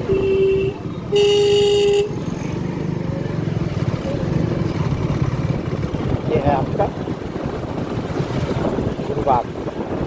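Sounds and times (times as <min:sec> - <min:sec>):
vehicle horn honking: 0:00.0 - 0:02.2
motorcycle engine running: 0:00.6 - 0:10.0.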